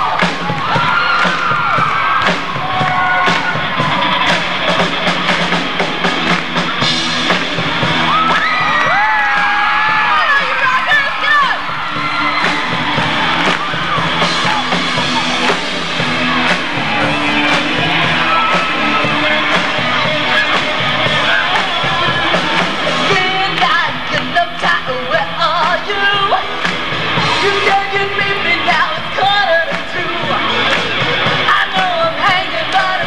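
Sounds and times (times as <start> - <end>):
live band playing: 0.0 - 33.0
amplified singing: 12.0 - 33.0.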